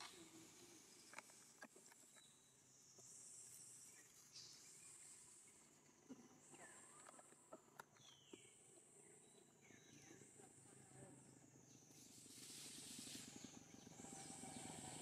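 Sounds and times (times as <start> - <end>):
leaves rustling: 12.1 - 13.4.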